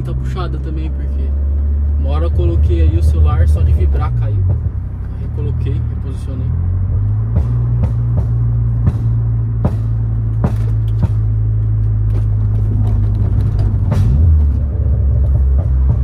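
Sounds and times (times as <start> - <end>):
car engine droning: 0.0 - 16.0
sharp knocks: 7.3 - 11.5.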